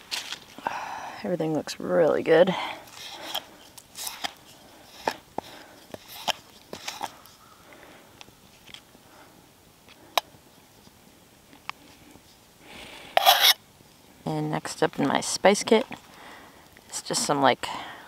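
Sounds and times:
knife scraping butter tin: 6.0s - 7.1s, 13.2s - 13.6s.

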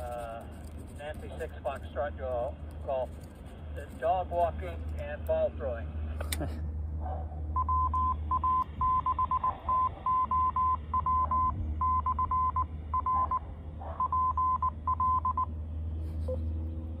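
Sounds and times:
morse code beeps: 7.6s - 13.4s, 14.0s - 15.5s.

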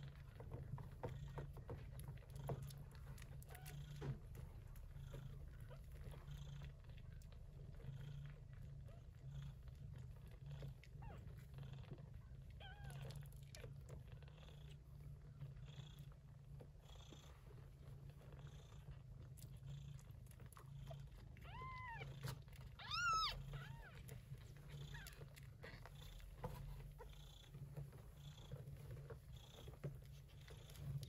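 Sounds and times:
cat purring: 0.0s - 31.0s
kitten mewing: 22.8s - 23.9s.

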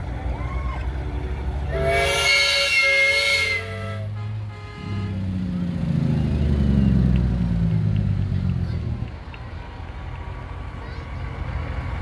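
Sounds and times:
diesel engine running low: 0.0s - 12.0s
truck air horn chord: 1.7s - 5.3s.

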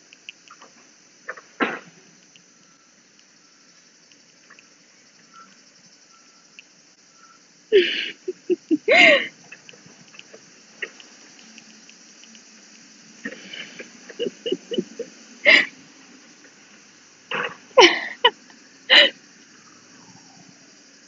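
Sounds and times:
woman laughing and giggling: 7.7s - 9.5s, 13.3s - 15.8s, 17.8s - 19.2s.

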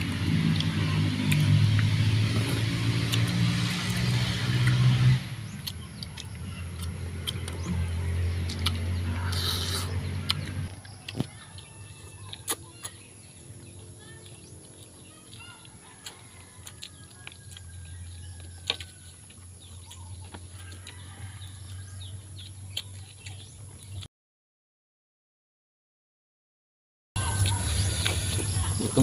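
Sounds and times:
shrimp being peeled and chewed: 0.0s - 24.1s, 27.2s - 29.0s
birds chirping faintly: 5.3s - 24.1s.

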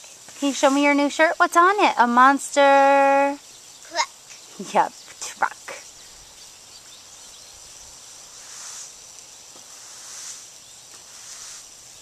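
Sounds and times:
sprinkler spraying water: 0.0s - 3.4s, 7.6s - 12.0s.

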